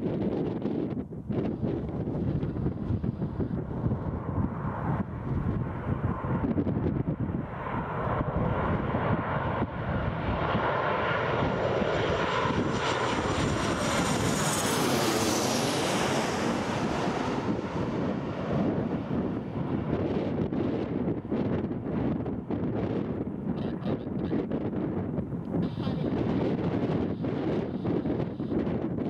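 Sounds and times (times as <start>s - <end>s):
jet airliner passing overhead: 0.0s - 29.0s
high engine whine: 25.4s - 28.9s.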